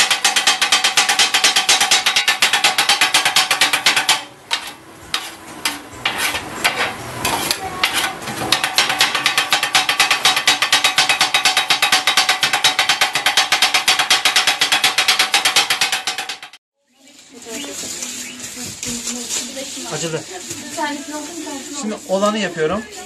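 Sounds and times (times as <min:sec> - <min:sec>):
metal scraper chopping on griddle: 0:00.0 - 0:16.6.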